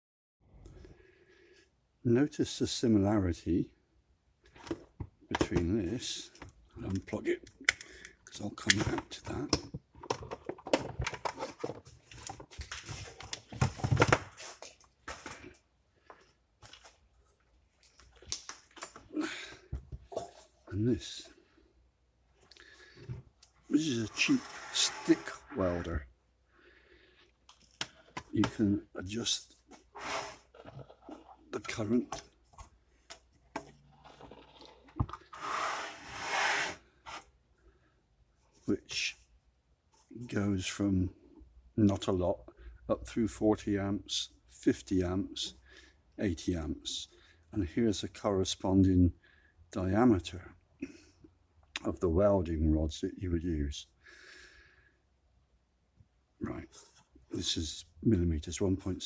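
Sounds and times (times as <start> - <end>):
metal case scraping on bench: 24.0 - 25.8, 29.9 - 31.4.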